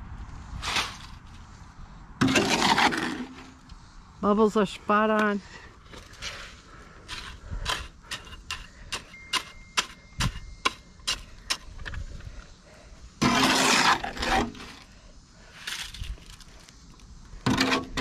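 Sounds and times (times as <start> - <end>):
shovel scraping in wheelbarrow: 0.5 - 1.4, 2.2 - 3.7, 13.2 - 14.9, 17.4 - 18.0.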